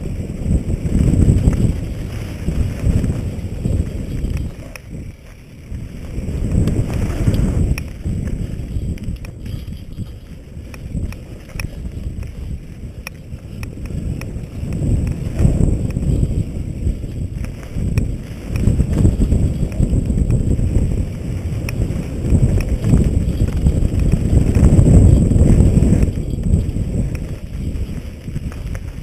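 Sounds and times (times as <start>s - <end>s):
bike clicks and rattles: 0.0s - 29.0s
wind buffeting microphone: 0.0s - 29.0s.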